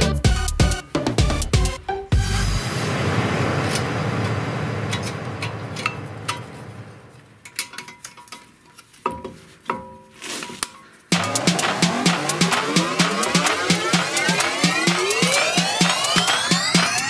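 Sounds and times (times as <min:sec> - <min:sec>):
background music: 0:00.0 - 0:02.7, 0:11.1 - 0:17.0.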